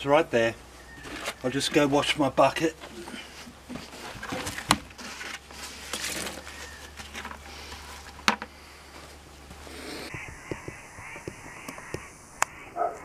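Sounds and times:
plastic tub scraping: 0:02.8 - 0:08.5.

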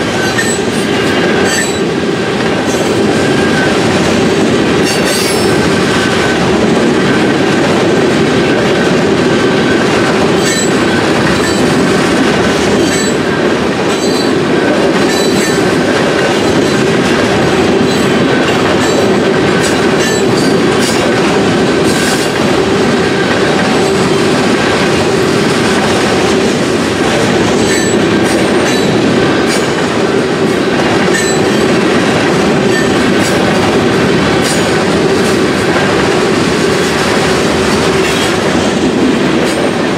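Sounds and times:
train wheels rumbling on rail: 0:00.0 - 0:39.9
high wheel squeal: 0:00.2 - 0:01.9
wheels clicking over rail joints: 0:04.4 - 0:39.9.

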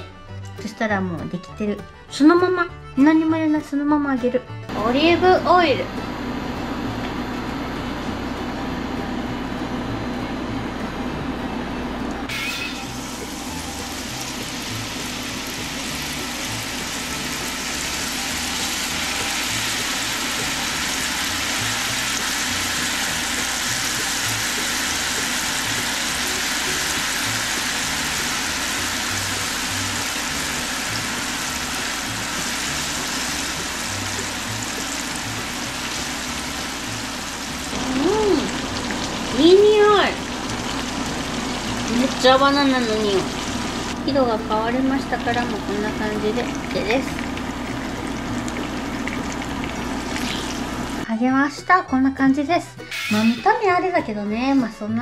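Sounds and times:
banana slices sizzling in oil: 0:12.3 - 0:51.0.

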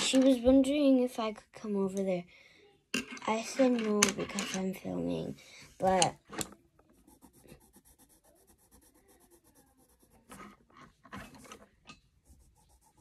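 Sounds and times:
pencil scratching on paper: 0:06.8 - 0:13.0.

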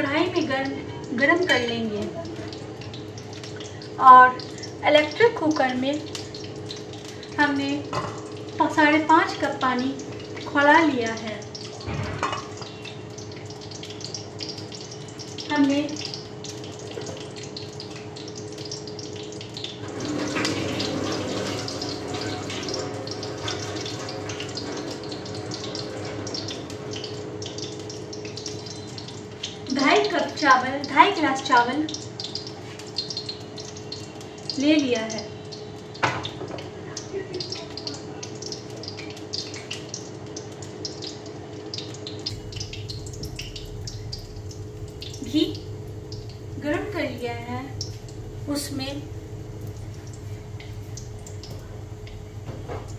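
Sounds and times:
ghee sizzling in an iron pan: 0:00.0 - 0:52.9
faint steady hum: 0:38.3 - 0:52.9.

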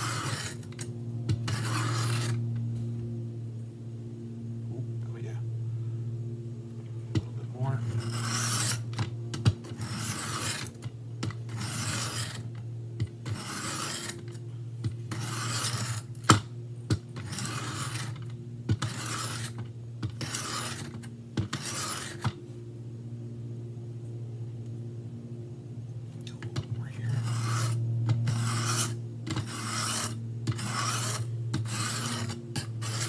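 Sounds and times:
knife rasping on sharpener: 0:00.0 - 0:00.7, 0:01.5 - 0:02.4, 0:07.9 - 0:10.8, 0:11.5 - 0:12.5, 0:13.3 - 0:14.4, 0:15.1 - 0:16.1, 0:17.2 - 0:22.3, 0:27.1 - 0:33.0.

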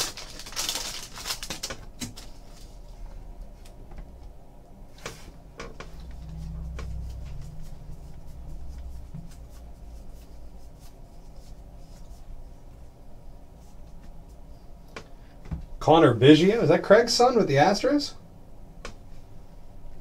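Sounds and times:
low rumble: 0:03.0 - 0:13.5.

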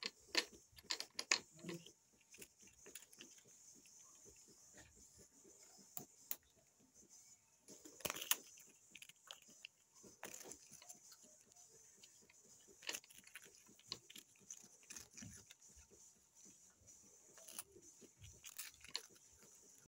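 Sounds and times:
kittens crunching a hard biscuit: 0:00.0 - 0:04.5, 0:07.7 - 0:15.9, 0:17.4 - 0:19.8.

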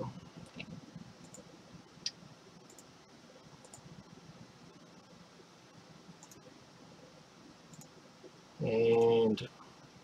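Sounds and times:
room hiss: 0:00.0 - 0:10.0
computer clicks: 0:00.4 - 0:03.0, 0:03.6 - 0:03.9, 0:06.2 - 0:06.5, 0:07.7 - 0:08.0.

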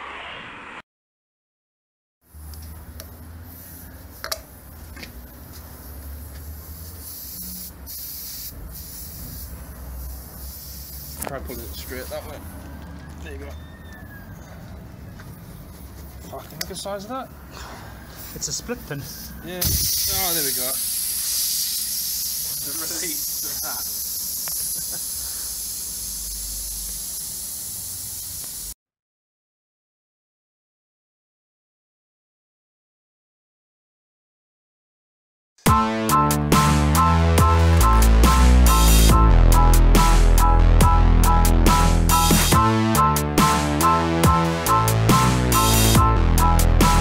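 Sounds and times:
air hissing from tyre: 0:02.3 - 0:12.6, 0:17.5 - 0:28.8.

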